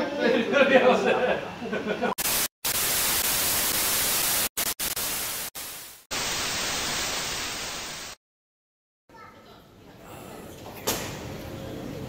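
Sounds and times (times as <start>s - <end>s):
tv static hiss: 2.2s - 8.2s.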